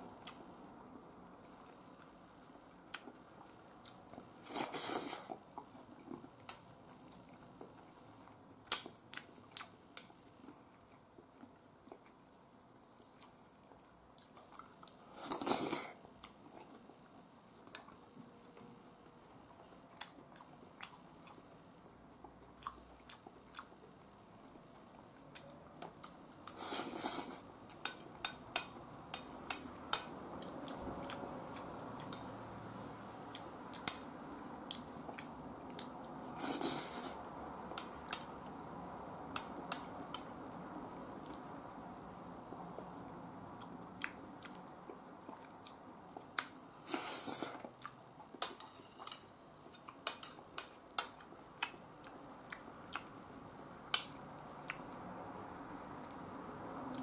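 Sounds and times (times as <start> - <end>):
person chewing: 12.9 - 17.0, 19.4 - 23.9, 24.7 - 32.5, 33.3 - 37.2, 42.8 - 56.2.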